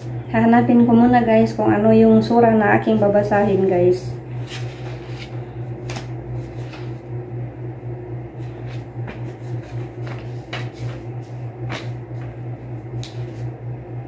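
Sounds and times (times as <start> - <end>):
steady low hum: 0.0 - 14.0
pages flicking and rustling: 4.4 - 7.0, 8.4 - 12.3.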